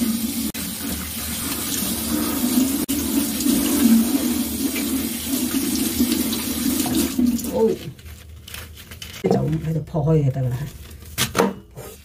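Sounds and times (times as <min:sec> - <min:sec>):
tap water running into a steel sink: 0:00.0 - 0:07.7.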